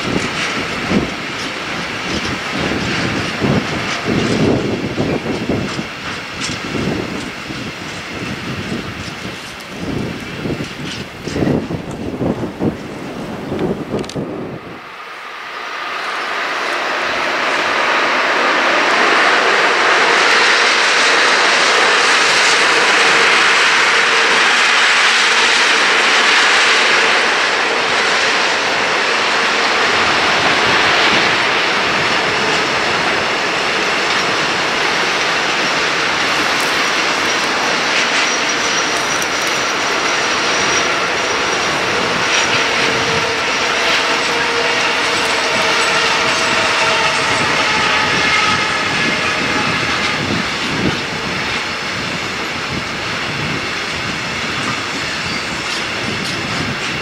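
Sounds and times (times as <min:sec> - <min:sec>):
wheels clattering over rail joints: 0:00.0 - 0:14.2, 0:18.9 - 0:57.0
freight train wheels rumbling: 0:00.0 - 0:57.0
high wheel squealing: 0:15.5 - 0:56.7.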